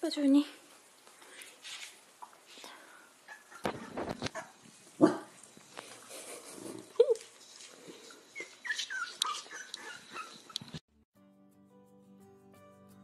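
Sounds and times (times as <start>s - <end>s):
puppies whimpering: 8.3s - 10.8s.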